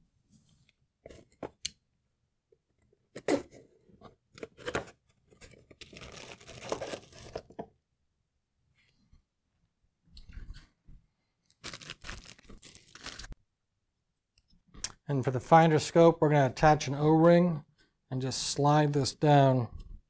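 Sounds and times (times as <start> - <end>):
packing scraping and crinkling: 5.4 - 7.5
cardboard tearing: 5.8 - 7.5, 11.6 - 13.3.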